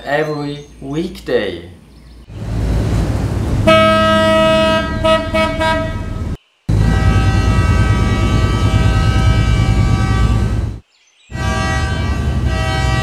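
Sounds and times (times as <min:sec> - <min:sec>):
ship horn blasting: 0:03.6 - 0:13.0.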